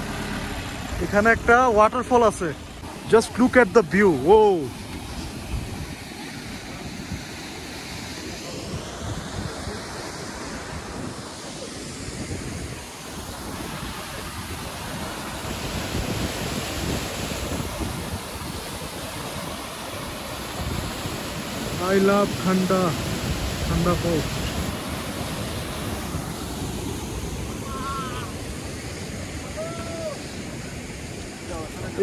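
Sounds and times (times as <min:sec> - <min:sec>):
waterfall rushing: 0:00.0 - 0:32.0
wind gusting on microphone: 0:00.2 - 0:32.0.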